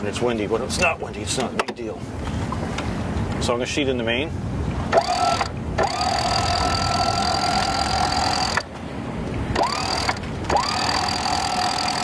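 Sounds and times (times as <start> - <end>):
electric winch whining: 4.9 - 8.7, 9.5 - 12.0.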